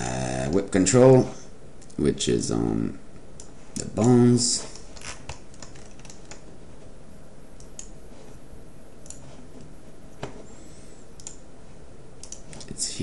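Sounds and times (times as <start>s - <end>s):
faint room noise: 0.0s - 13.0s
computer mouse clicking: 3.4s - 6.5s, 7.6s - 8.0s, 9.0s - 10.3s, 11.2s - 11.4s, 12.2s - 12.8s.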